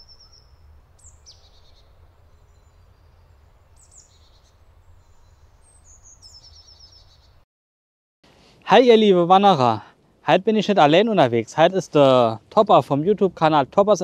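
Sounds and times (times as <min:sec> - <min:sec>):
faint birdsong: 0:00.0 - 0:07.4.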